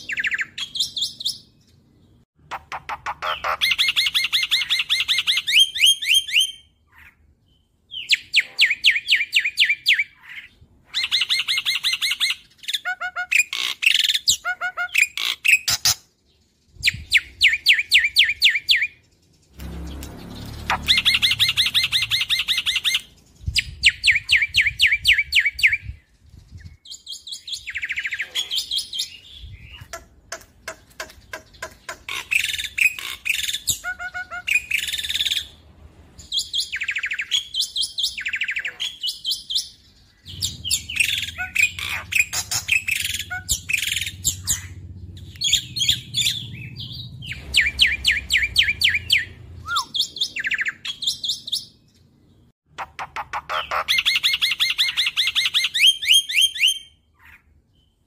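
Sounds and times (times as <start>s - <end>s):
starling singing: 2.4s - 7.2s, 16.8s - 26.0s, 36.4s - 51.8s, 52.8s - 57.4s.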